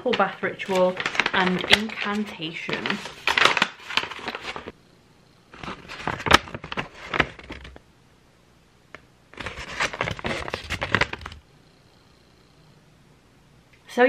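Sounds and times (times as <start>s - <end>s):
stiff paper crinkling: 0.0s - 4.7s, 5.6s - 7.8s, 9.4s - 11.4s.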